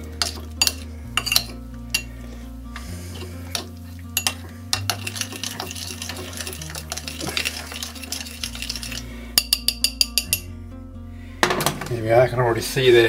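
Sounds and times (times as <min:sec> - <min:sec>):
spoon clinking and scraping bowl: 0:00.2 - 0:02.1, 0:03.1 - 0:10.5
sauce squelching: 0:02.8 - 0:09.4.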